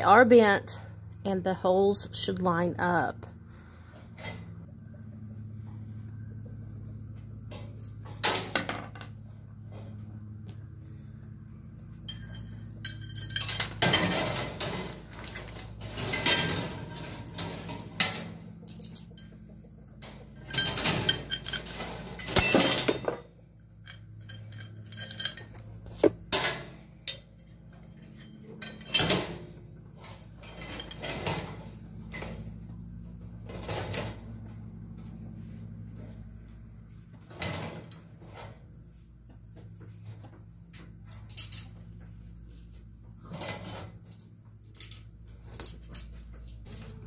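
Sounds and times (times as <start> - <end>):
steady low hum: 0.0 - 47.0
steel parts clinking and rattling: 12.0 - 32.6, 40.7 - 42.0, 43.3 - 47.0.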